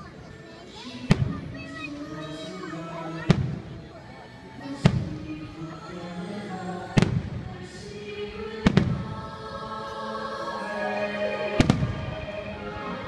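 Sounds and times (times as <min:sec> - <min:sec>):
music: 0:00.0 - 0:13.0
firework bangs: 0:08.6 - 0:09.2, 0:11.6 - 0:12.2.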